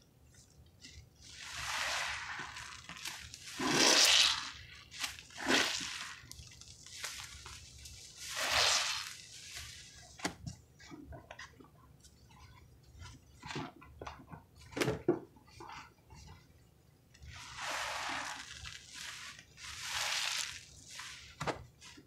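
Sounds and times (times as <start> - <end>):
sponge squelching: 0.3 - 13.8, 17.2 - 22.0
wet squishing of soapy foam: 0.3 - 14.8, 17.2 - 22.0.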